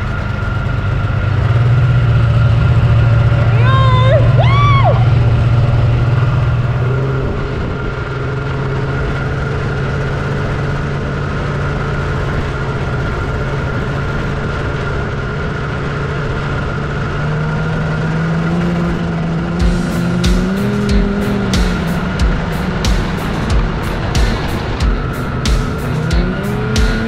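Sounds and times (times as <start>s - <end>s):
snowmobile engine running: 0.0s - 27.0s
music with regular beat: 19.6s - 27.0s.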